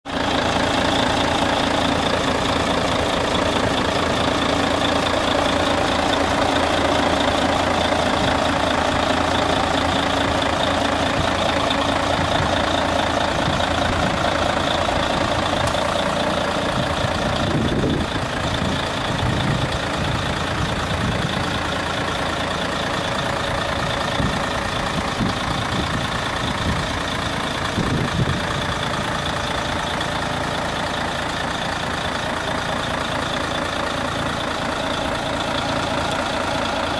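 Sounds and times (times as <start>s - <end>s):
diesel engine idling: 0.0s - 36.9s
wind buffeting microphone: 16.7s - 21.5s, 24.1s - 27.0s, 27.6s - 29.0s.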